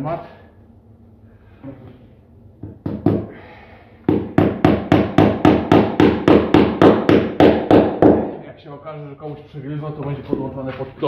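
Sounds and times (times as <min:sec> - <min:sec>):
hammer striking nails into wood: 0:02.6 - 0:03.3, 0:04.1 - 0:08.4.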